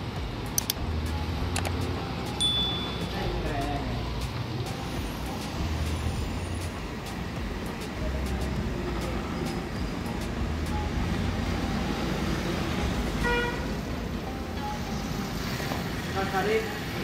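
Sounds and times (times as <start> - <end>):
traffic rumble: 0.0 - 17.0
short high beep: 2.4 - 3.2.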